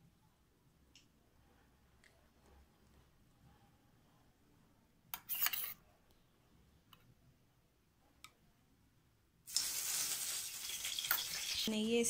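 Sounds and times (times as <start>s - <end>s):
spoon scraping bowl: 5.2s - 5.8s.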